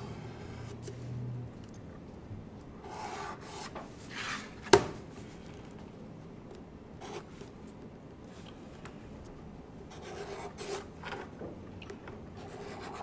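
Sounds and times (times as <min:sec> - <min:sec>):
marker scratching: 0:09.9 - 0:10.8, 0:12.4 - 0:13.0.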